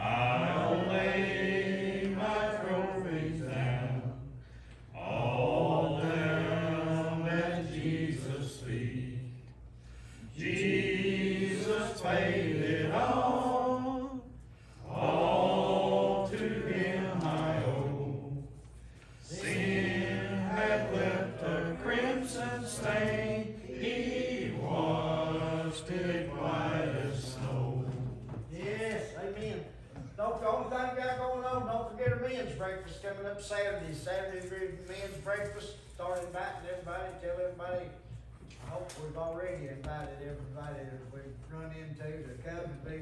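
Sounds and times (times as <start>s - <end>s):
congregation singing a hymn: 0.0s - 29.3s.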